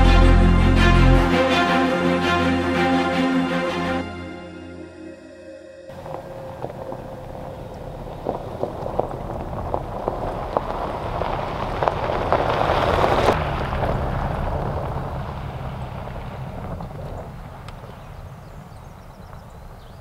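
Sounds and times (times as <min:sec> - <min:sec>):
engine droning: 0:00.0 - 0:18.6
tyres crunching over gravel: 0:05.9 - 0:20.0
stones popping: 0:06.0 - 0:13.4.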